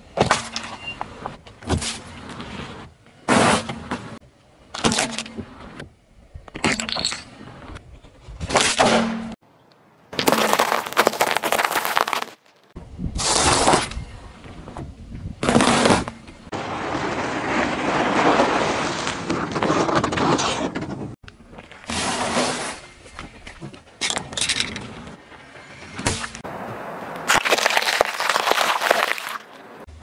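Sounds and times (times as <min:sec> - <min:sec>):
tyre crushing eggs: 0:10.2 - 0:12.5, 0:27.2 - 0:29.6
tyre squashing soft objects: 0:10.2 - 0:12.5, 0:27.3 - 0:29.5.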